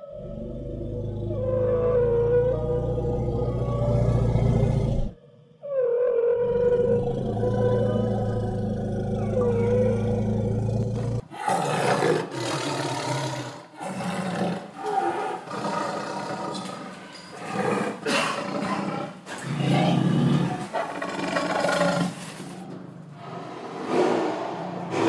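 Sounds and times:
creature roaring: 0:00.0 - 0:05.2, 0:05.8 - 0:16.6.

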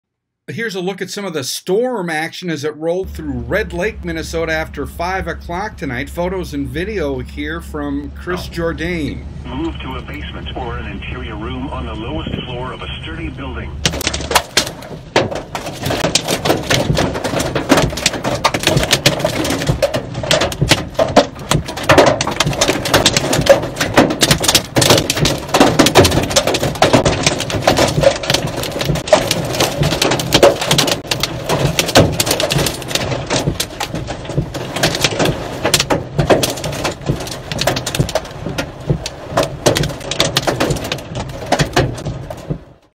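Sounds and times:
steady low rumble: 0:02.9 - 0:42.9
hail pelting a vehicle roof: 0:13.8 - 0:42.9.

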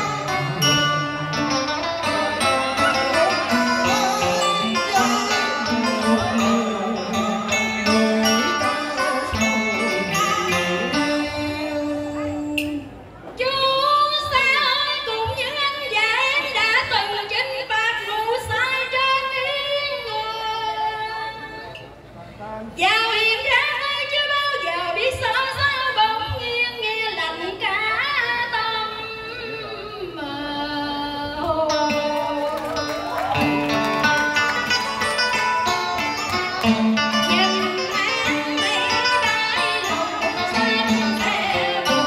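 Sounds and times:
instrumental accompaniment: 0:00.0 - 0:13.1, 0:31.5 - 0:42.0
woman singing ornamented vocal line: 0:02.0 - 0:12.9, 0:37.3 - 0:42.0.

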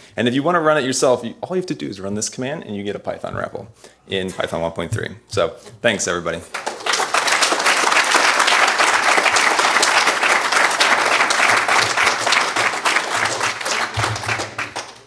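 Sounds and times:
audience applauding: 0:06.5 - 0:15.0.

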